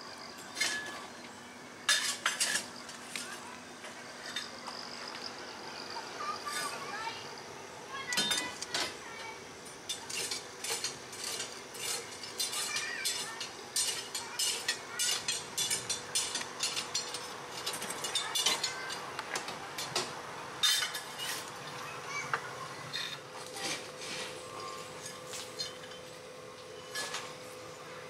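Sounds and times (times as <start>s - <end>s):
fire iron scraping coal: 1.8s - 5.2s, 6.2s - 7.0s, 8.3s - 19.0s, 20.6s - 21.7s, 22.9s - 26.2s, 26.8s - 27.7s.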